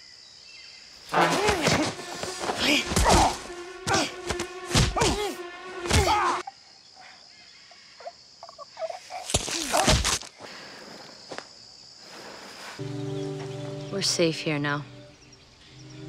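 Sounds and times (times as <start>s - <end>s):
thuds of blows: 1.1s - 6.4s.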